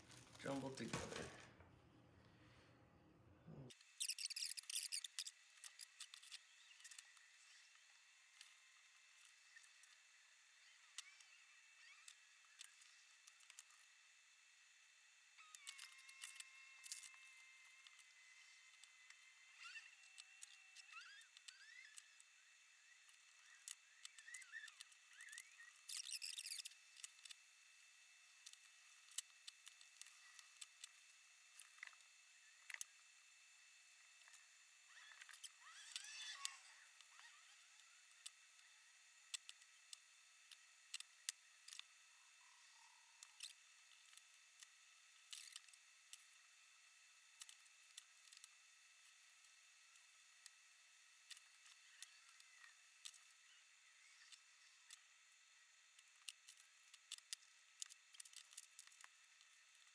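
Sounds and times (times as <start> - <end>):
plastic parts rustling and scraping: 0.0 - 1.5, 3.8 - 7.2
screwdriver and screws clicking on plastic: 56.0 - 59.9.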